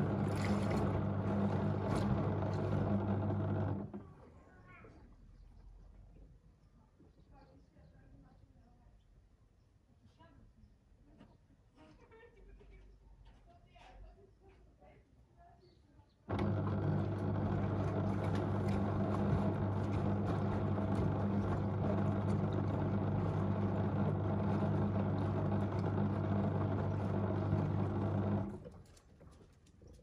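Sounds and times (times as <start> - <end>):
water sloshing in drum: 0.0 - 3.2, 16.4 - 28.7
washing machine motor hum: 0.0 - 4.0, 16.3 - 28.7.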